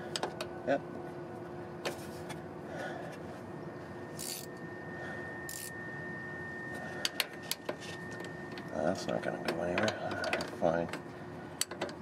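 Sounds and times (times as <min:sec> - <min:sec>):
steady low hum: 0:00.0 - 0:12.0
ratchet wrench metallic click: 0:05.5 - 0:05.7.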